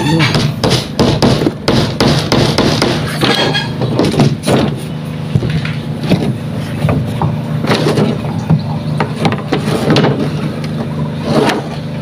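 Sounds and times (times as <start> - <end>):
hammer nailing into wood: 0.2 - 4.8
engine running: 2.8 - 12.0.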